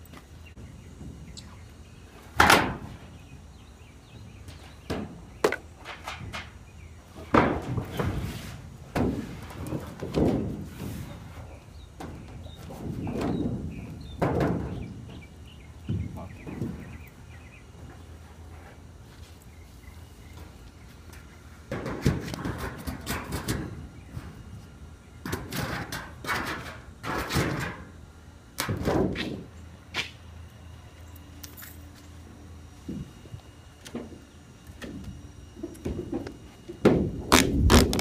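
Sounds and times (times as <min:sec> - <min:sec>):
sheet metal thuds and scrapes: 0:07.3 - 0:11.3, 0:12.0 - 0:15.2, 0:21.7 - 0:24.4.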